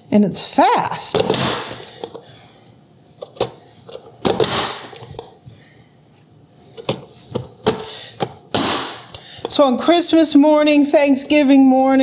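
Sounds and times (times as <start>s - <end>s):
brief high squeak: 5.2s - 5.4s.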